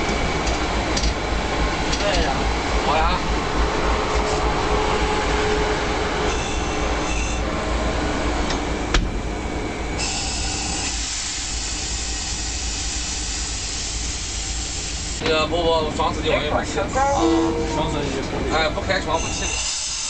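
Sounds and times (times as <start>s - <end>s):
locomotive engine rumble: 15.5s - 19.3s.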